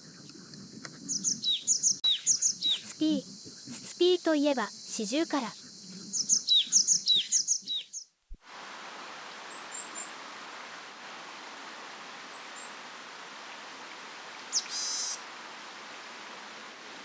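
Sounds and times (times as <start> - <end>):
steady outdoor hiss: 0.0 - 17.0
high thin bird calls: 1.1 - 3.8, 5.4 - 8.1, 14.5 - 15.2.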